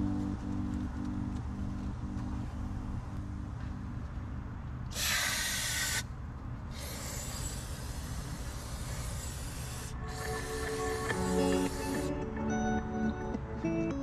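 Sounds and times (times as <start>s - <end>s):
music with pitched notes: 0.0s - 4.8s, 10.0s - 14.0s
steady low rumble: 0.0s - 13.4s
spray hissing: 4.9s - 6.1s, 6.7s - 12.1s.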